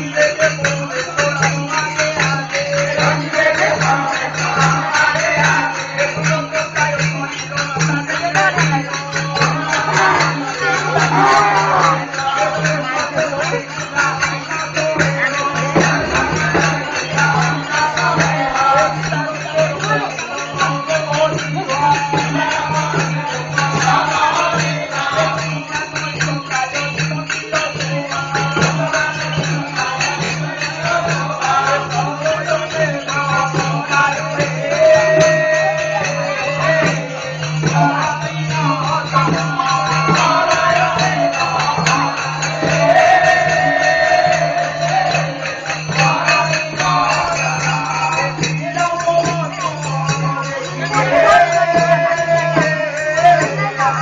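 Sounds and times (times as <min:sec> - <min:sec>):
fast percussion beat: 0:00.0 - 0:54.0
live folk music: 0:09.2 - 0:22.7, 0:46.8 - 0:54.0.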